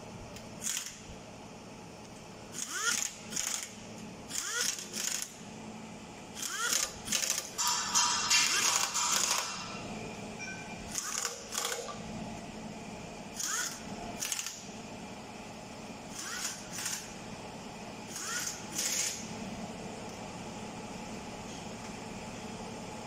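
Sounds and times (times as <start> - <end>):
low shop hum: 0.0 - 23.0.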